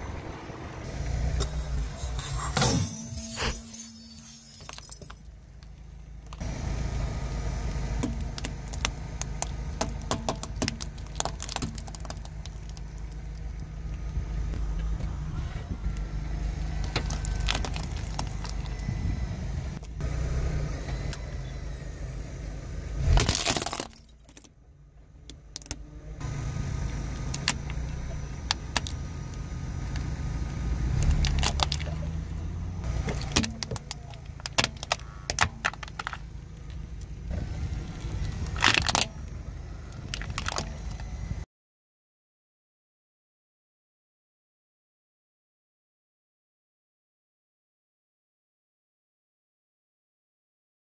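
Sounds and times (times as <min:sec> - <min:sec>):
car rumbling: 0:00.0 - 0:41.4
plastic cracking and snapping: 0:38.4 - 0:39.1.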